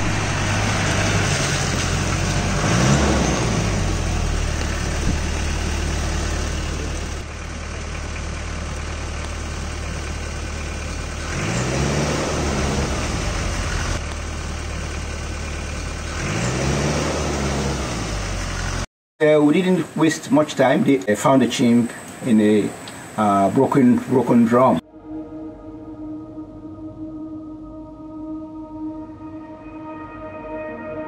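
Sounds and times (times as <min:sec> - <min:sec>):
vehicle engine revving: 0:00.0 - 0:18.9.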